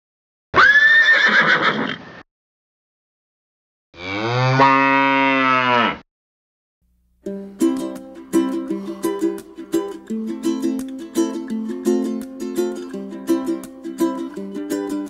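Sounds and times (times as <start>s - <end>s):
cow mooing: 4.0s - 6.0s
short rough animal call: 4.0s - 6.0s
plucked-string music: 7.2s - 15.0s.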